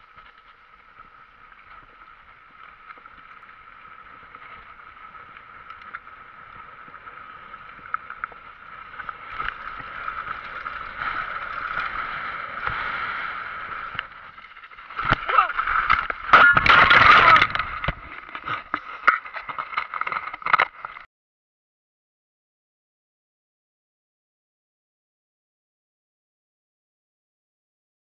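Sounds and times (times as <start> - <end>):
bike tyres on loose dirt: 0.0 - 21.1
bike knocks and rattles: 15.0 - 20.9.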